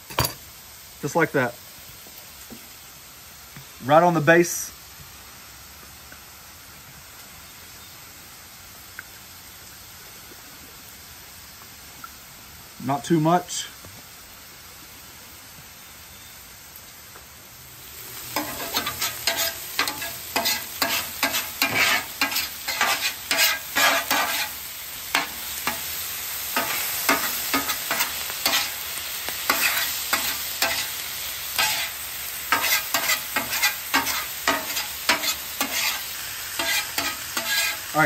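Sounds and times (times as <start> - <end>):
faint hiss: 0.0 - 38.0
meat sizzling on griddle: 0.0 - 38.0
metal spatula clacking on griddle: 18.3 - 24.5, 25.1 - 25.9, 26.6 - 28.8, 29.5 - 31.0, 31.6 - 31.9, 32.5 - 36.0, 36.6 - 37.8.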